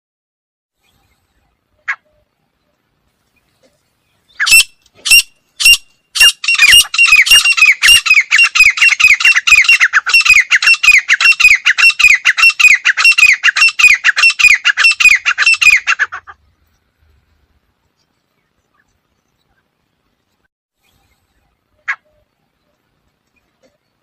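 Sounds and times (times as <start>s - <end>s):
francolin calling: 0.8s - 16.8s.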